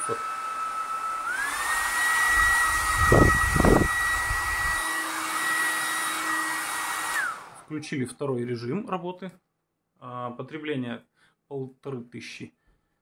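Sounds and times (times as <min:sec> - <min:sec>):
hair dryer whine and rushing air: 0:00.0 - 0:07.7.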